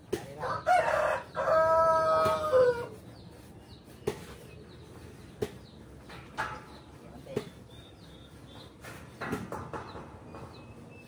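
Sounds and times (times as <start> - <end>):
rooster crowing: 0.4 - 3.0.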